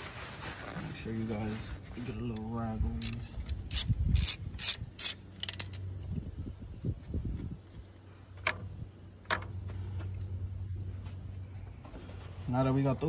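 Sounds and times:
sharp metallic clicks: 2.3 - 5.9.

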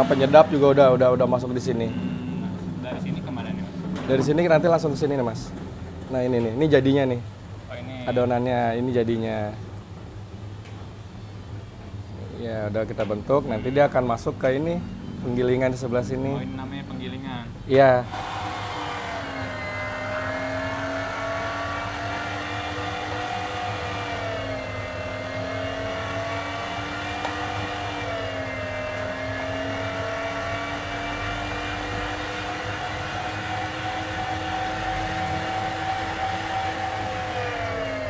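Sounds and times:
electric meat grinder motor humming: 18.1 - 38.0.

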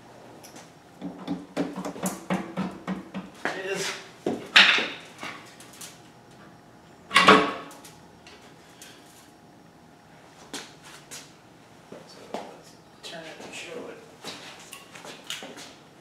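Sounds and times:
sharp knocks on engine case: 1.0 - 3.3.

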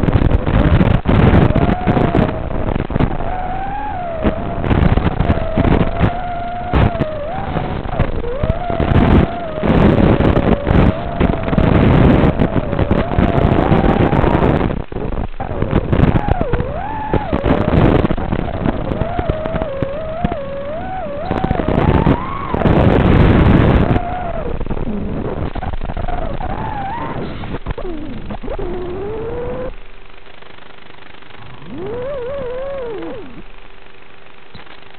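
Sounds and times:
rushing gusty noise: 0.0 - 33.6
quadcopter motors whining: 31.5 - 33.4.

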